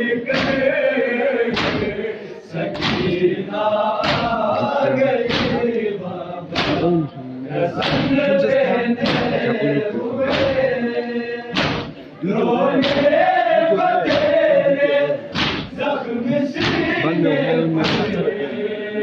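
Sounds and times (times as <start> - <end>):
men chanting in unison: 0.0 - 19.0
crowd striking chests: 1.4 - 2.1, 2.7 - 3.3, 4.0 - 5.8, 6.5 - 6.9, 8.9 - 10.7, 11.5 - 12.0, 12.8 - 14.5, 15.3 - 15.8, 16.6 - 17.1, 17.8 - 18.2.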